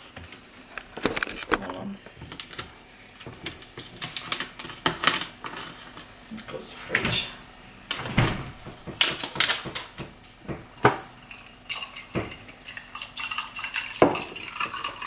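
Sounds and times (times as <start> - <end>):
juice trickling into glass: 11.2 - 15.0.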